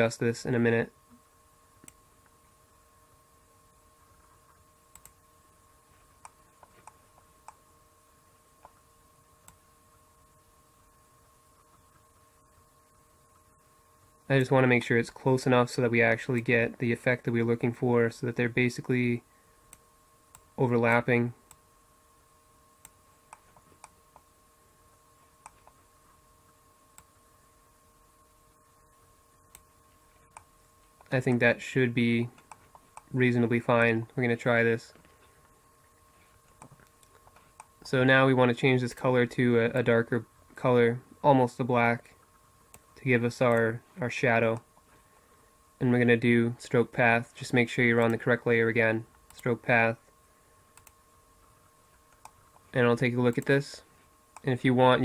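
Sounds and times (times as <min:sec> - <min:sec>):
faint electrical hum: 0:00.0 - 0:55.0
computer mouse clicks: 0:04.9 - 0:05.2, 0:50.8 - 0:51.0, 0:52.1 - 0:52.6
mouse clicks: 0:04.9 - 0:05.2, 0:50.8 - 0:51.0.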